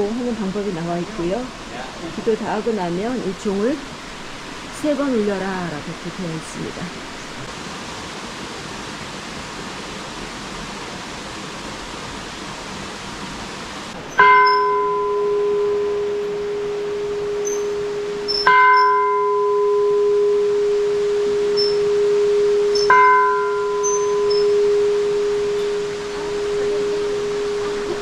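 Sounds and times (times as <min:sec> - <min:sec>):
steady hiss: 0:00.0 - 0:28.0
large metal bell ringing: 0:14.1 - 0:28.0.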